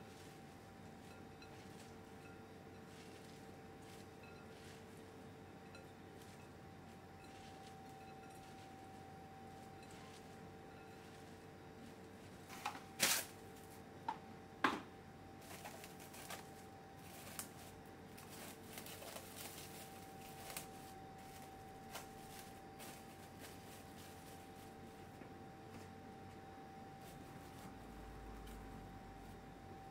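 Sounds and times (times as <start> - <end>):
plastic cling film crackling: 12.0 - 13.8, 15.4 - 25.1.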